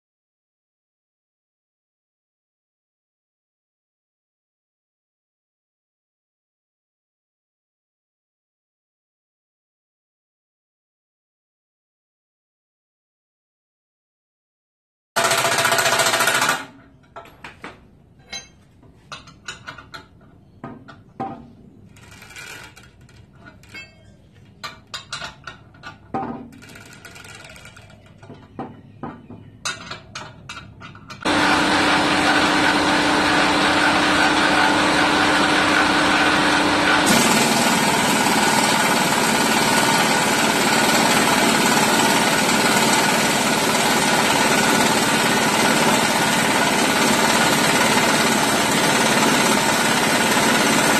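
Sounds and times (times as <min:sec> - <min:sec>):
power tool running: 0:15.2 - 0:16.7, 0:31.2 - 0:50.9.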